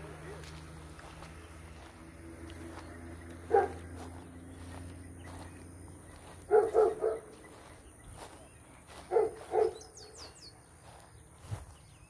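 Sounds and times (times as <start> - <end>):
faint high bird chirps: 2.7 - 12.0
animal barking: 3.4 - 4.1, 6.4 - 7.4, 9.0 - 10.1.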